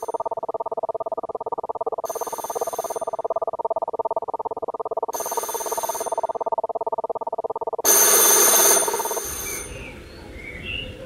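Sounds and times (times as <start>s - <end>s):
harsh ringing burst: 7.8s - 9.8s
telephone bell ringing: 7.9s - 9.7s.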